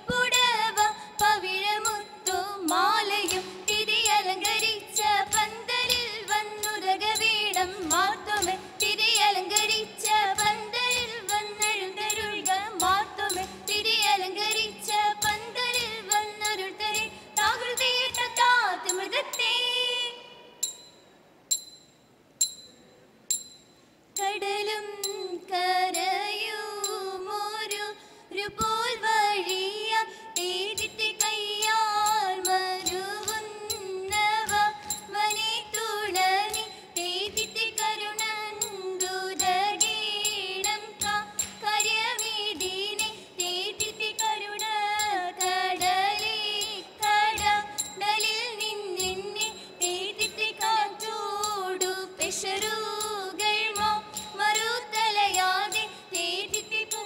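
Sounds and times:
rhythmic clapping: 0:00.0 - 0:18.3, 0:30.4 - 0:40.0, 0:45.4 - 0:57.0
high voices singing in unison: 0:00.0 - 0:20.7, 0:24.2 - 0:57.0.

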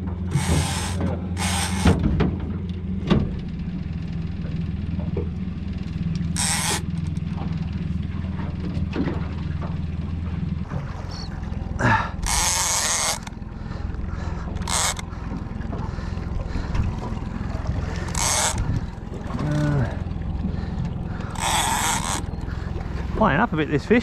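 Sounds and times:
outboard motor hum: 0:00.0 - 0:24.0
fishing reel clicking: 0:00.3 - 0:01.9, 0:06.3 - 0:07.2, 0:12.2 - 0:13.4, 0:14.6 - 0:15.0, 0:18.0 - 0:18.6, 0:21.4 - 0:22.4
bursts of reel noise: 0:00.3 - 0:02.0, 0:06.3 - 0:07.2, 0:12.2 - 0:13.4, 0:14.6 - 0:15.2, 0:17.8 - 0:18.8, 0:21.3 - 0:22.6.

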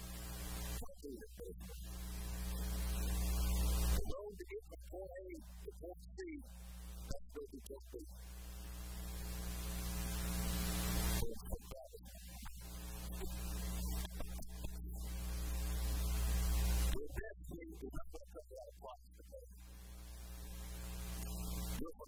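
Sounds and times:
electrical hum buzzing: 0:00.0 - 0:18.1, 0:19.2 - 0:22.0
man's voice: 0:00.8 - 0:01.9, 0:04.0 - 0:06.5, 0:07.1 - 0:08.2, 0:11.2 - 0:12.5, 0:16.9 - 0:19.6, 0:21.8 - 0:22.0.

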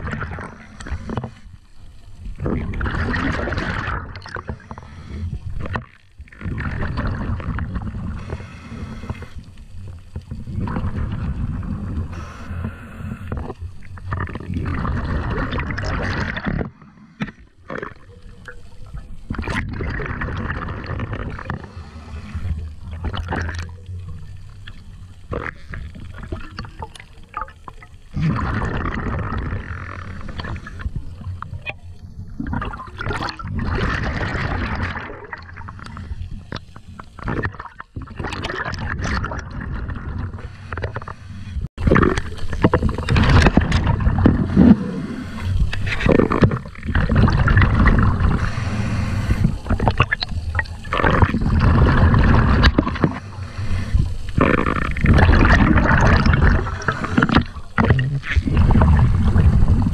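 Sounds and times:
muffled underwater rushing: 0:00.0 - 0:59.9.

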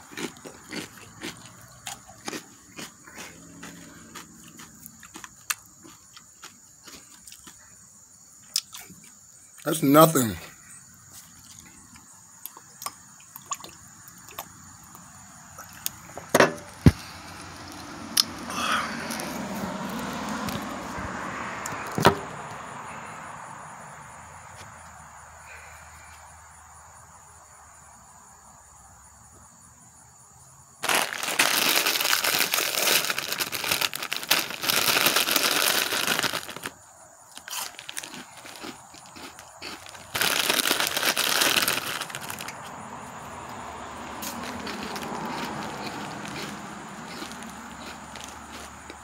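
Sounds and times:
snack bag crinkling: 0:00.0 - 0:07.6, 0:30.8 - 0:42.6, 0:44.2 - 0:49.0.

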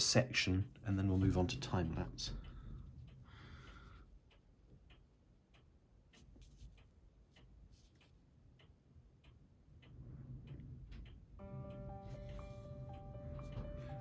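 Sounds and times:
music with held notes: 0:11.4 - 0:14.0.

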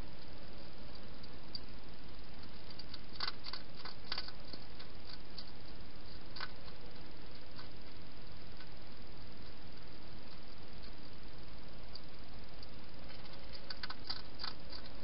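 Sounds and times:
steady hiss: 0:00.0 - 0:15.0
hedgehog clicks and smacks: 0:02.4 - 0:07.8, 0:13.1 - 0:15.0.

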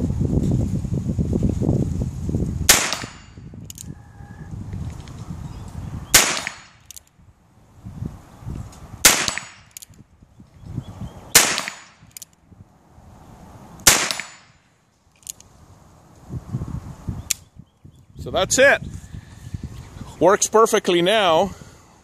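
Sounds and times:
revolver gunshots: 0:02.7 - 0:03.3, 0:06.1 - 0:06.8, 0:09.0 - 0:09.7, 0:11.3 - 0:12.0, 0:13.8 - 0:14.6.

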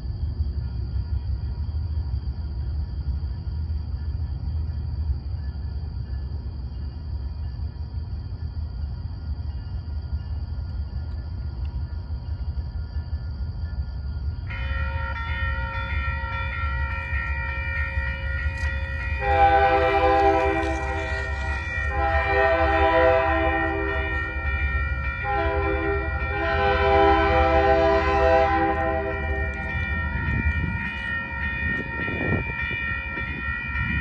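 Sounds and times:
crossing signal bell ringing: 0:14.5 - 0:34.0
locomotive air horn blasts: 0:19.2 - 0:24.2, 0:25.2 - 0:29.6.

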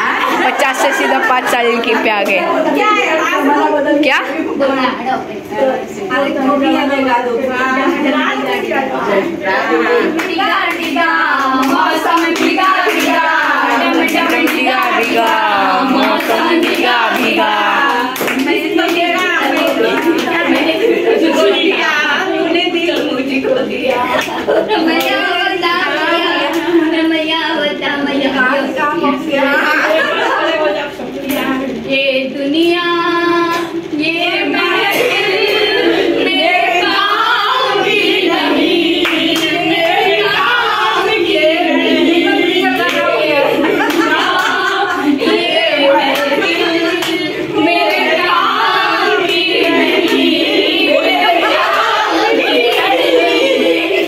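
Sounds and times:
women singing together: 0:00.0 - 0:54.0
hands clapping in rhythm: 0:10.1 - 0:20.8, 0:24.1 - 0:25.2, 0:38.8 - 0:40.0, 0:42.6 - 0:53.1.

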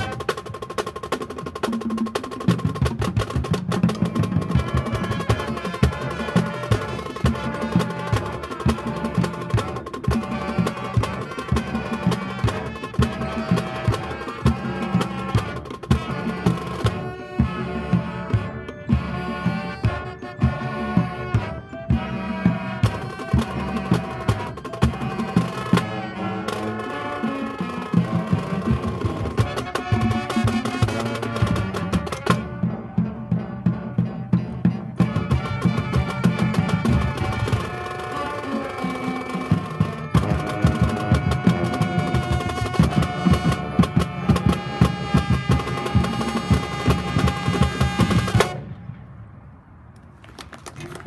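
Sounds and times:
drumline steady beat: 0:00.0 - 0:48.7
marching band brass: 0:00.0 - 0:49.3.

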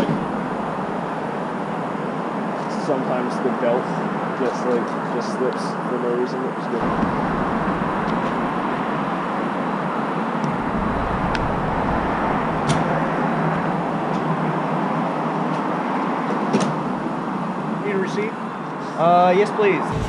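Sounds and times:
vehicle traffic noise: 0:00.0 - 0:02.8, 0:06.8 - 0:19.0, 0:19.6 - 0:20.0.

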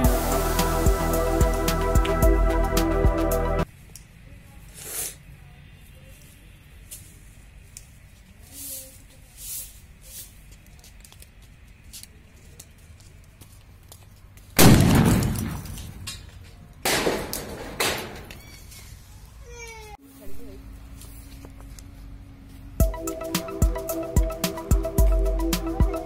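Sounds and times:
firecracker bangs: 0:14.6 - 0:16.1.

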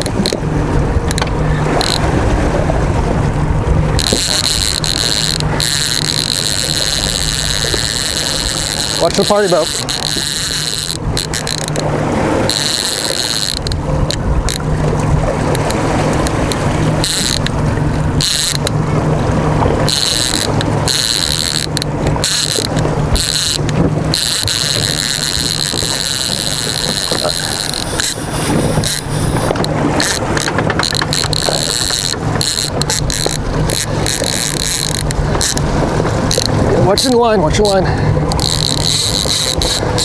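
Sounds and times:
outboard motor humming: 0:00.0 - 0:40.0
wind and water rushing: 0:00.0 - 0:40.0.

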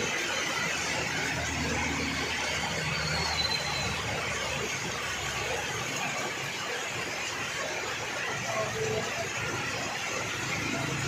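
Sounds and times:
heavy rain on a road: 0:00.0 - 0:11.0
auto-rickshaw engine passing: 0:07.7 - 0:11.0.

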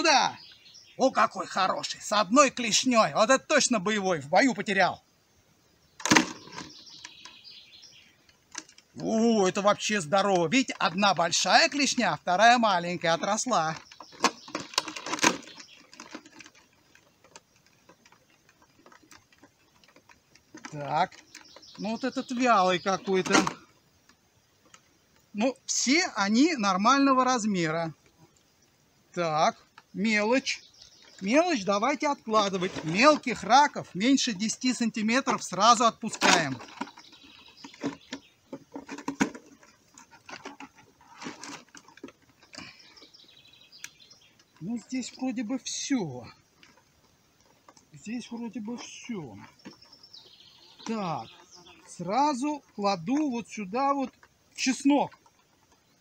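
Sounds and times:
plastic clicks and clatters: 0:13.7 - 0:21.8, 0:36.1 - 0:42.8.

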